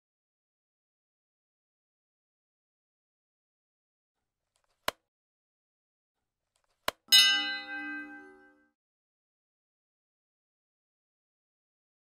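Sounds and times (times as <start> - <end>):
bright bell ding: 7.1 - 8.7.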